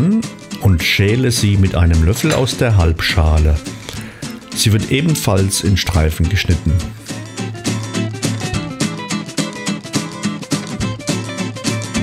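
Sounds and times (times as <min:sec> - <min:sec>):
plucked guitar music: 0:00.0 - 0:12.0.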